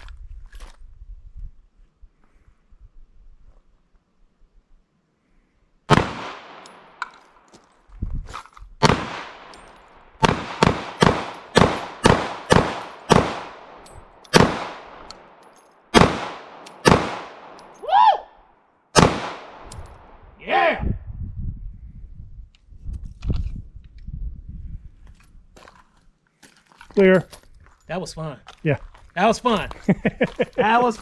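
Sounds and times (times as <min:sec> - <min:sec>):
pistol shots echoing: 0:05.9 - 0:07.0, 0:08.8 - 0:09.6, 0:10.2 - 0:15.1, 0:15.9 - 0:17.7, 0:19.0 - 0:19.7.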